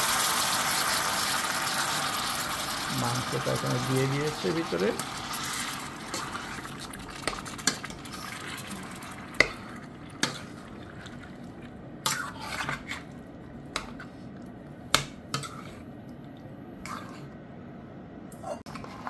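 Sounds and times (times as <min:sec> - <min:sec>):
spoon stirring food in pot: 0:03.7 - 0:15.9, 0:16.8 - 0:17.3, 0:18.6 - 0:19.0.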